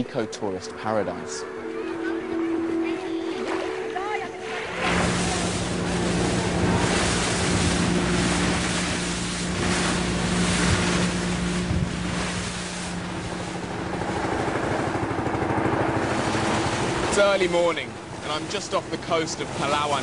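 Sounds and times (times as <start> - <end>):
boat engine humming: 0.0 - 20.0
water rushing past hull: 0.0 - 20.0
wind buffeting microphone: 1.5 - 20.0.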